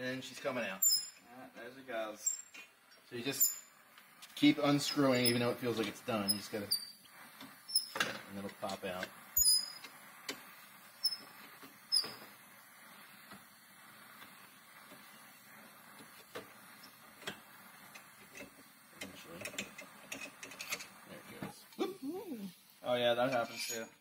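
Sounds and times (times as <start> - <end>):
gas torch hissing: 0.0 - 24.0
short high squeaks: 0.8 - 1.2, 6.2 - 7.0, 7.7 - 8.0, 9.4 - 9.9, 11.0 - 12.3.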